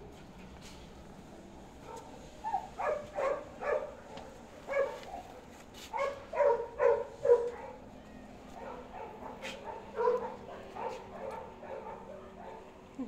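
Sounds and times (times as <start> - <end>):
dog yipping: 1.9 - 3.9, 4.7 - 5.3, 5.9 - 7.8, 8.6 - 12.6.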